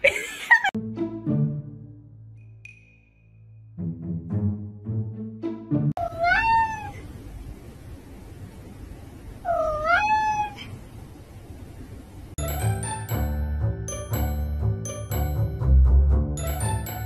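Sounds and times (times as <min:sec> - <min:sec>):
cat meowing: 0:06.0 - 0:07.1, 0:09.4 - 0:10.7.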